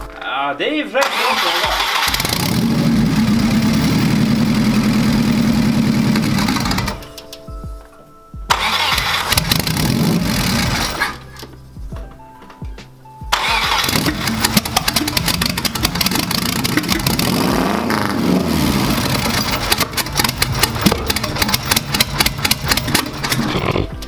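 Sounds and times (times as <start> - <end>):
car engine starting and running unevenly: 1.0 - 7.2, 8.5 - 11.5, 13.3 - 24.0.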